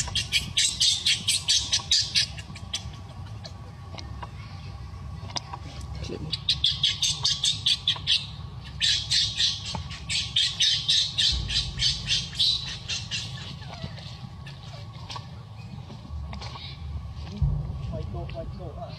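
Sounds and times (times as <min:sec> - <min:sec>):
baby monkey crying: 0:00.0 - 0:03.5, 0:06.4 - 0:14.9.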